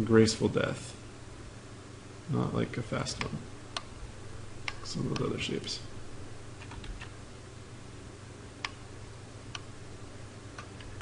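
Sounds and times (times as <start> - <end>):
faint low hum: 0.0 - 11.0
sharp clicks of computer controls: 3.1 - 4.0, 4.6 - 5.4, 6.6 - 7.2, 8.6 - 8.9, 9.5 - 9.8, 10.5 - 11.0.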